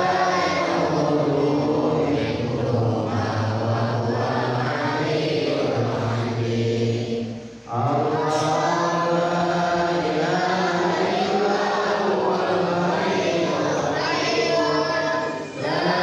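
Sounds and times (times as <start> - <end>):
men chanting in unison: 0.0 - 16.0.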